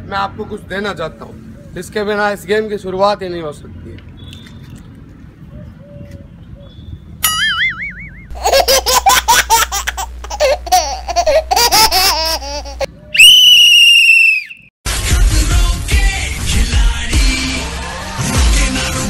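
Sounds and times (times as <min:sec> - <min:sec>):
high-pitched laughter: 0:08.3 - 0:12.9
plastic whistle blast: 0:13.2 - 0:14.7
music: 0:14.9 - 0:19.0.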